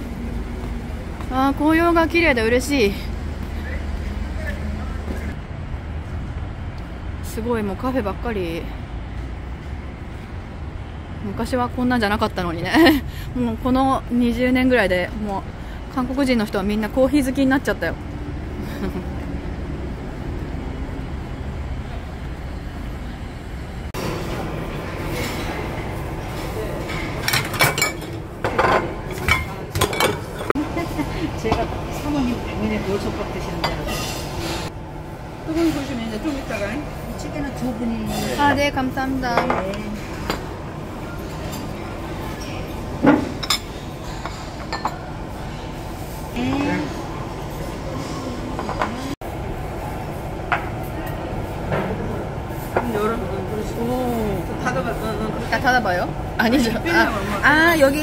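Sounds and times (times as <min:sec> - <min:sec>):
low rumble of city traffic: 0:00.0 - 0:58.0
dishes and utensils clinking: 0:24.3 - 0:30.6, 0:33.5 - 0:34.7, 0:38.0 - 0:38.7, 0:41.2 - 0:45.2.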